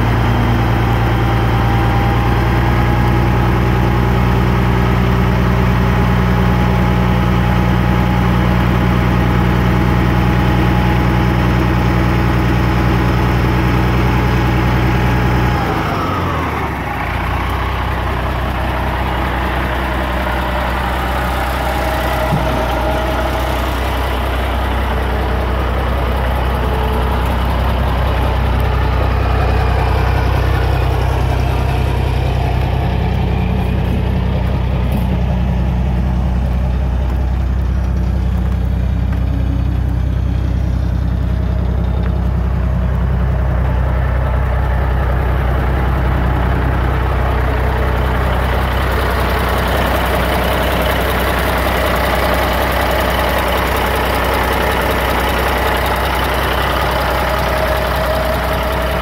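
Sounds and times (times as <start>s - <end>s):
diesel truck engine running: 0.0s - 59.0s.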